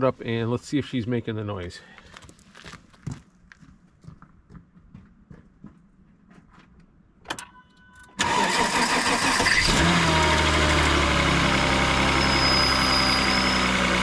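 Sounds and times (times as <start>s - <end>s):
engine starter cranking: 8.1s - 10.7s
engine idling: 8.2s - 14.0s
faint high squeak: 12.1s - 14.0s.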